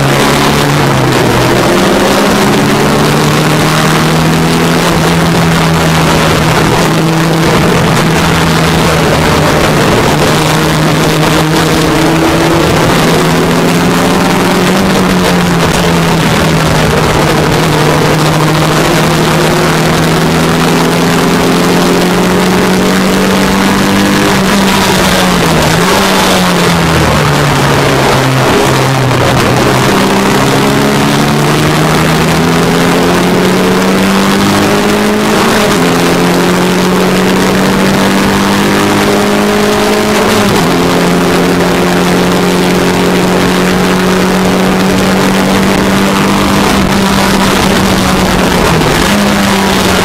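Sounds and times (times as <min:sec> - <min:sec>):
racing car engine at high revs: 0:00.0 - 0:50.0
rush of wind noise: 0:00.0 - 0:50.0.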